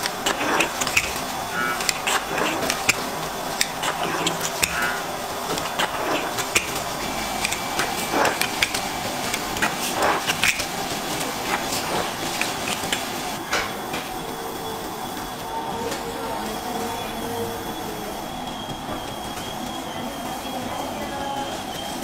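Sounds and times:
blade scraping on a tray: 0:00.0 - 0:13.1.

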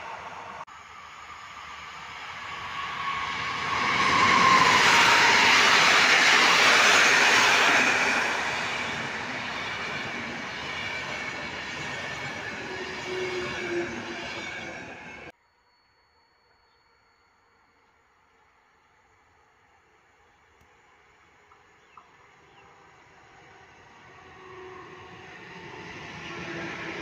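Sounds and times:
train wheels on rails: 0:00.0 - 0:15.3.

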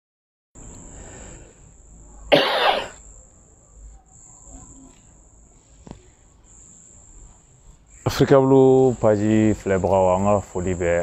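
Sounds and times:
crickets trilling: 0:00.6 - 0:11.0
man coughing: 0:02.3 - 0:03.0.

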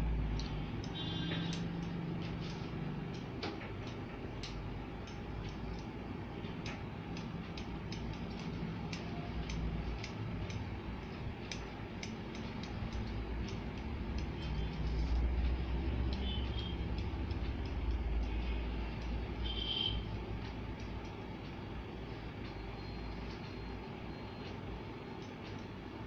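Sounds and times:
low steady hum: 0:00.0 - 0:26.0
scissors snipping hair: 0:00.2 - 0:19.5.

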